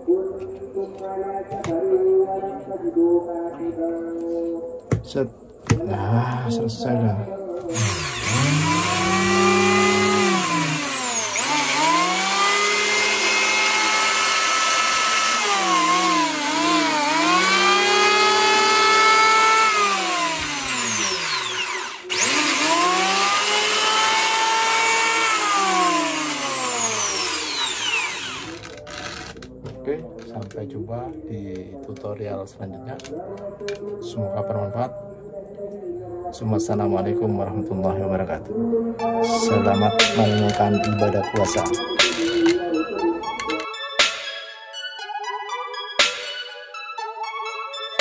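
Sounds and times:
electric hand planer motor: 7.7s - 29.5s.

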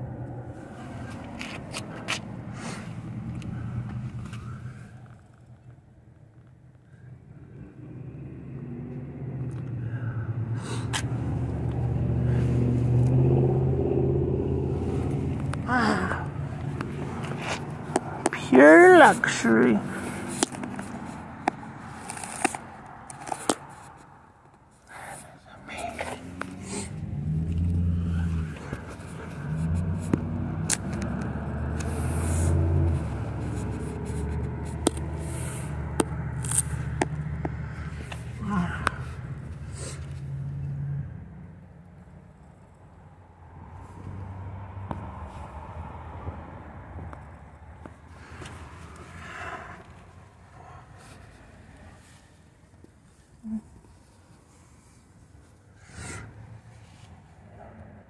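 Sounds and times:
car engine running: 7.0s - 23.7s, 25.6s - 40.8s.

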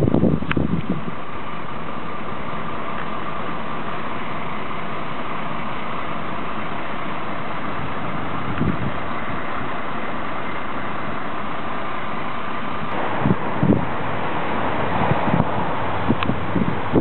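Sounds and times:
diesel engines idling: 0.0s - 17.0s.

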